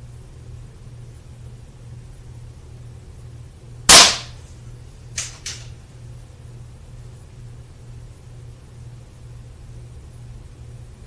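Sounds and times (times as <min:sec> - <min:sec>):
air pistol shot: 0:03.9 - 0:04.4.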